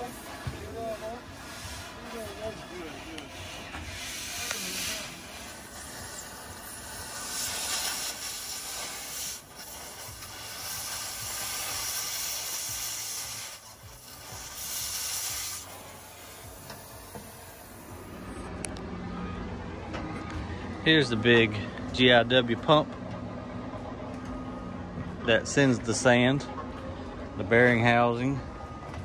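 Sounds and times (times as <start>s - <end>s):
loud hissing: 1.4s - 18.0s.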